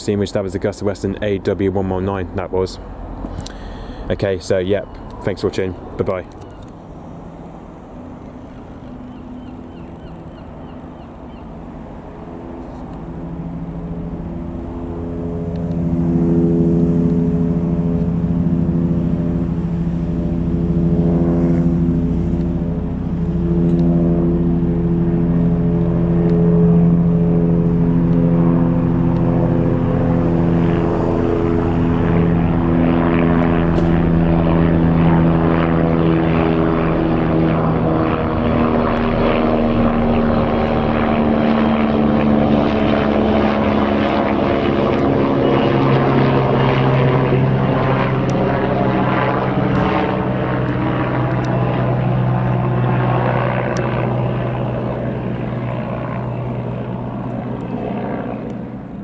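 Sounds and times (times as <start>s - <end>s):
helicopter rotor thrum: 0.0s - 59.0s.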